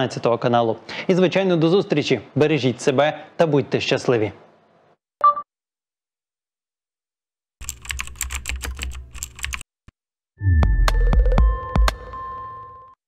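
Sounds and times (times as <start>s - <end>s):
keyboard keystroke clicks: 7.6s - 9.6s.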